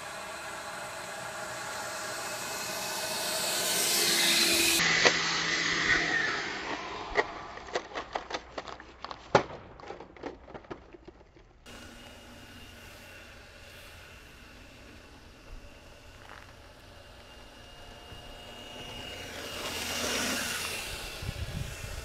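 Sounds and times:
electric fan whine: 0.0 - 7.0, 11.7 - 22.0.

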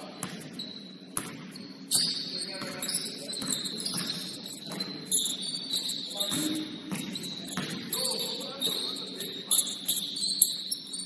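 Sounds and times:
basketball bouncing: 0.0 - 5.1, 6.2 - 8.0
high-pitched shoe squeaks: 0.0 - 11.0.

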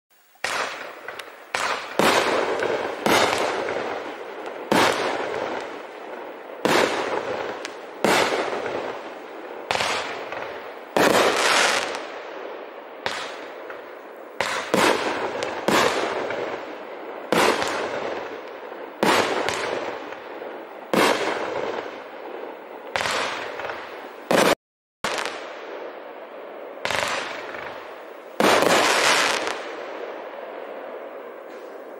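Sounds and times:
fireworks cake bangs: 0.4 - 5.9, 6.6 - 9.0, 13.0 - 20.3.

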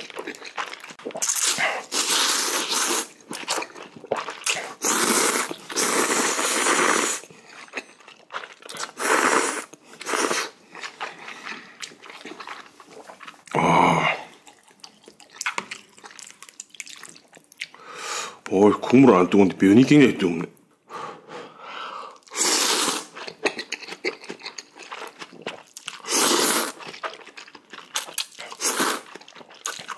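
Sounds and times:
noodles being slurped: 0.0 - 13.5, 22.2 - 29.9
wet chewing: 0.0 - 13.6, 14.3 - 17.8, 23.0 - 29.9.

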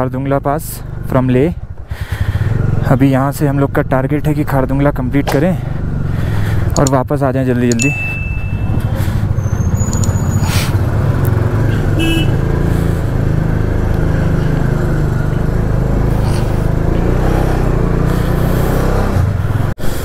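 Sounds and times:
motorcycle engine running: 0.8 - 4.1, 7.8 - 19.7.

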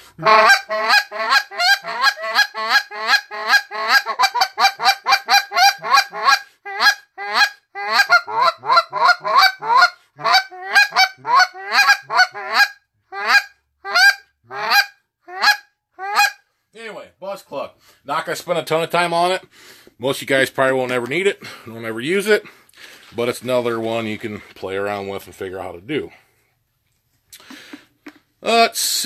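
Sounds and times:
goose call clucks: 0.0 - 16.4.

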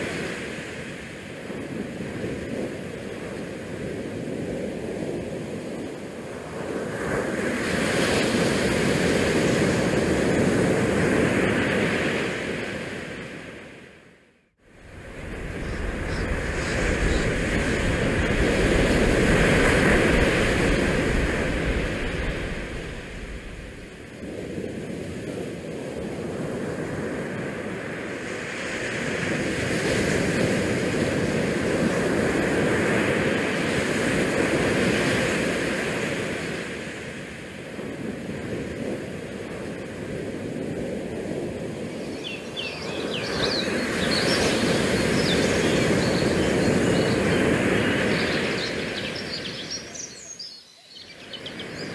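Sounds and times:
wind buffeting microphone: 14.6 - 50.4.

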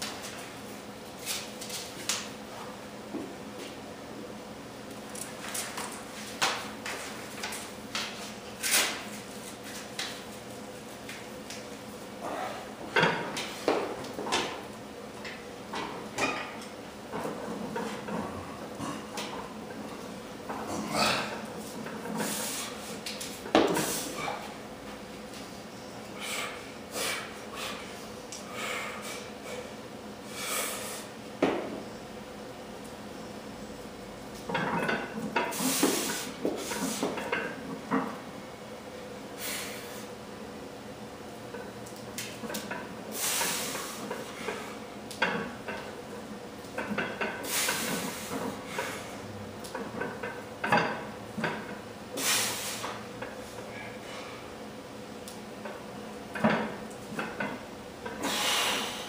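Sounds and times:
person breathing hard: 26.2 - 31.1.

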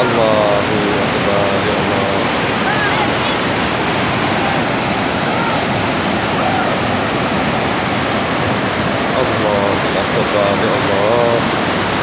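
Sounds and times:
floodwater rushing: 0.0 - 12.0
distant human calls: 2.6 - 7.2.

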